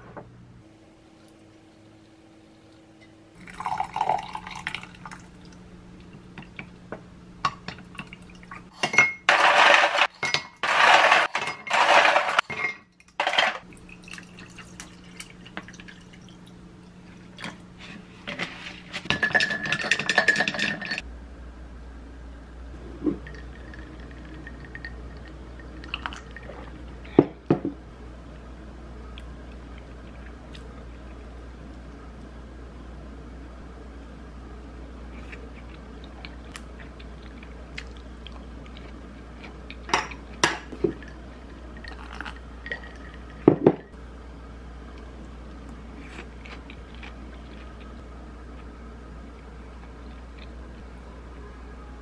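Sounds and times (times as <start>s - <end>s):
water pouring into mug: 3.4s - 5.5s
ice cubes clattering in glass: 9.3s - 12.4s.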